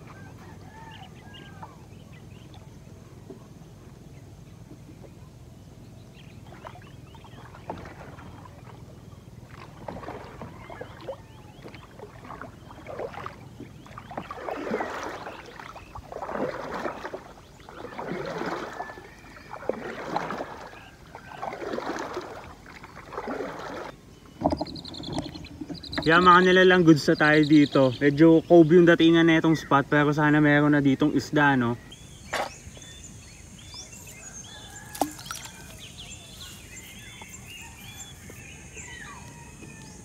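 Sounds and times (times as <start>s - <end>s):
paddle splashing in water: 6.2s - 26.8s, 31.9s - 40.0s.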